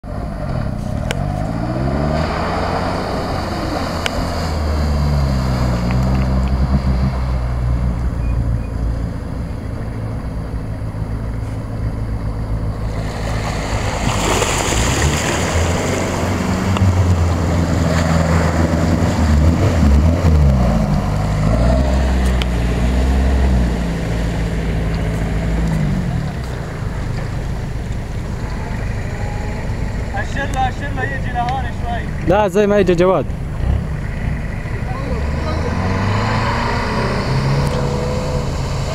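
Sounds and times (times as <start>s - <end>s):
engines revving: 0.1s - 38.9s
water splashing: 12.8s - 19.8s.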